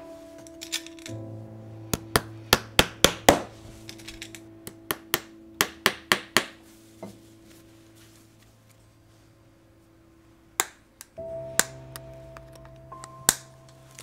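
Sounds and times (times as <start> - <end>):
faint steady hum: 0.0 - 14.0
hammer tapping: 4.6 - 7.2.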